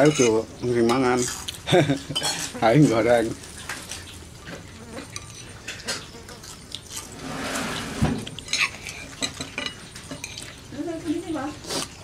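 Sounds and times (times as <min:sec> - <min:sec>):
cutlery clinking on plates: 0:00.0 - 0:01.5, 0:02.1 - 0:03.0, 0:05.0 - 0:06.1, 0:07.7 - 0:10.5.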